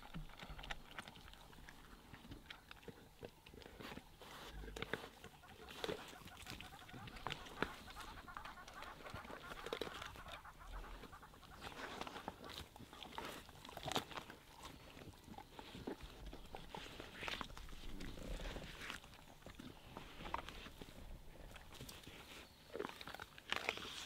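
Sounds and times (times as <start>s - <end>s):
tearing and chewing at carcass: 0.0s - 24.0s
wild dogs squeaky calls: 5.0s - 12.6s.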